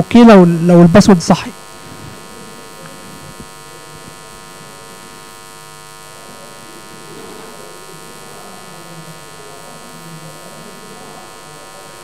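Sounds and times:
electrical buzz: 0.0 - 12.0.

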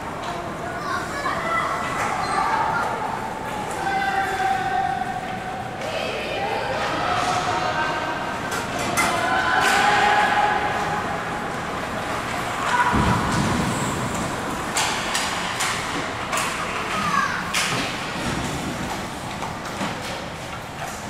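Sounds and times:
hockey sticks and puck clacking: 11.5 - 21.0.

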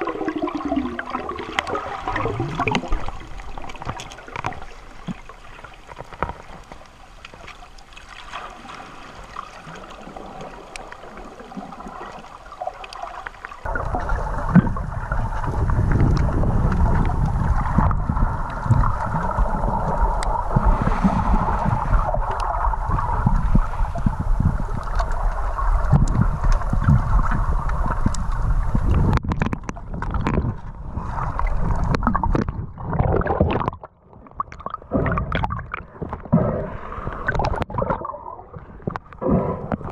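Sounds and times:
muffled underwater hiss: 0.0 - 29.2
water rushing and gurgling: 0.0 - 39.9.

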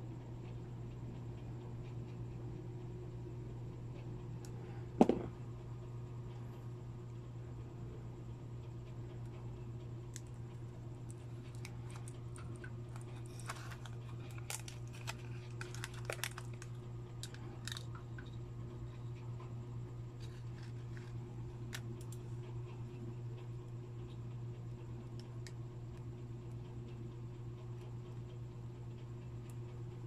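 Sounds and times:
low electrical hum: 0.0 - 30.0
plastic phone parts clicking: 11.5 - 18.0.

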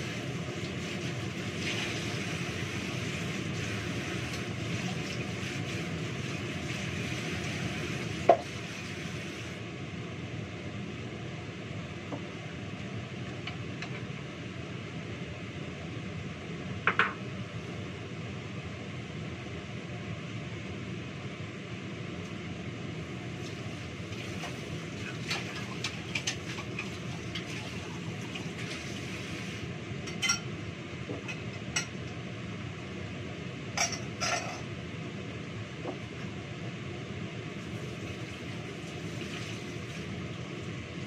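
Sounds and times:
tap water running: 0.0 - 9.6, 23.4 - 30.4, 37.6 - 40.7
dishes clinking: 30.1 - 30.5, 33.8 - 34.7.

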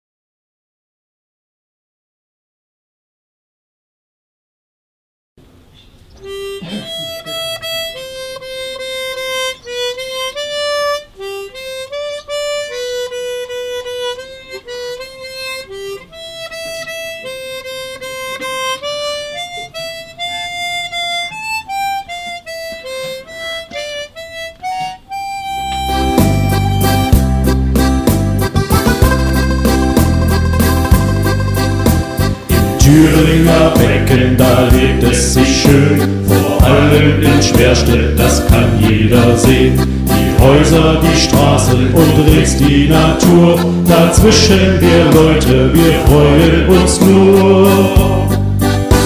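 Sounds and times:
band with keyboard and bass: 6.2 - 49.0
solo harmonica melody: 6.2 - 49.0.

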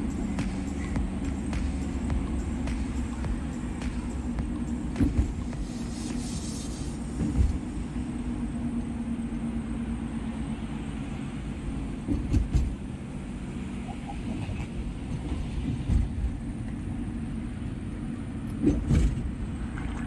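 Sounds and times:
car road and engine rumble: 0.0 - 20.0
short thumps: 0.3 - 6.2.

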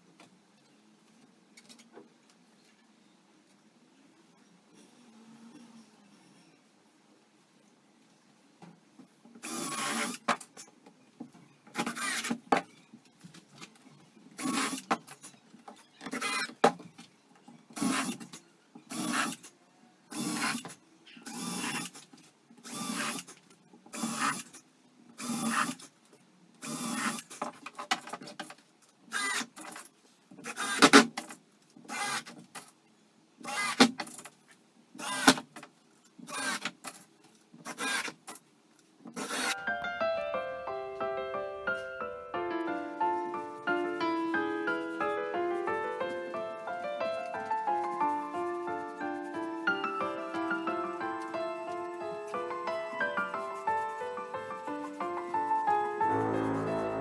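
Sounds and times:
cordless drill driving screws into wood: 9.4 - 10.3, 11.8 - 12.4, 14.4 - 14.9, 16.1 - 16.5, 17.8 - 18.3, 18.9 - 19.5, 20.1 - 20.7, 22.6 - 23.3, 25.2 - 25.9, 26.6 - 27.4, 29.1 - 29.5, 30.4 - 31.1, 31.9 - 32.4, 33.4 - 34.0, 35.0 - 35.5, 36.3 - 36.8, 37.6 - 38.2, 39.2 - 39.6.

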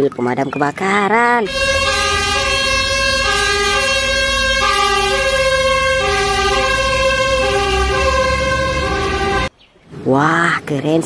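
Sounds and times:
traffic: 0.0 - 10.0
fire engine two-tone siren: 1.5 - 9.5
truck engine rumble: 1.5 - 9.5.

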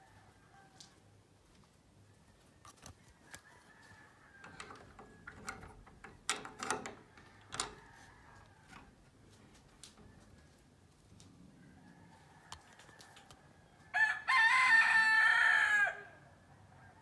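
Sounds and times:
rooster crowing faintly: 0.0 - 1.1, 2.1 - 17.0.

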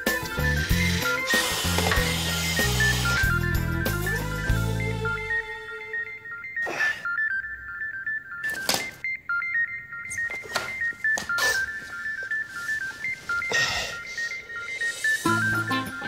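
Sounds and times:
phone electronic ringtone: 0.0 - 16.0
clothes and papers rustling: 9.9 - 14.5.

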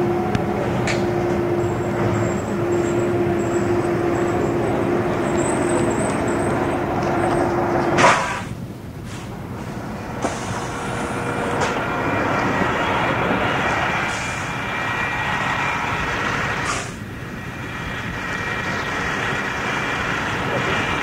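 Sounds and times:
bus diesel engine rumble: 0.0 - 21.0
short air hiss: 16.6 - 17.0.

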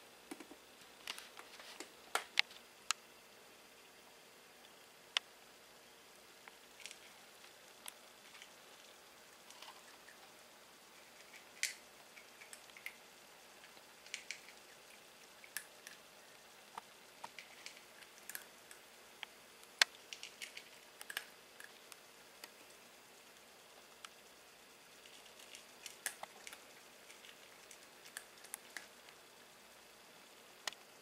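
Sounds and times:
low steady hiss: 0.0 - 31.0
small clicks and ticks: 6.4 - 29.5, 30.6 - 31.0.

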